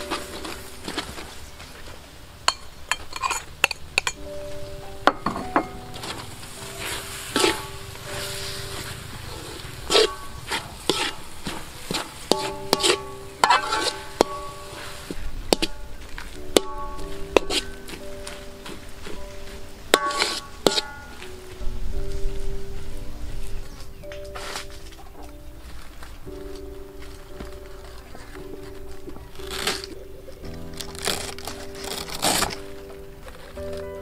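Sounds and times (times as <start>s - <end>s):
metal spoon scraping metal pan: 2.5s - 4.2s, 6.8s - 15.9s, 16.5s - 17.8s, 19.9s - 21.2s.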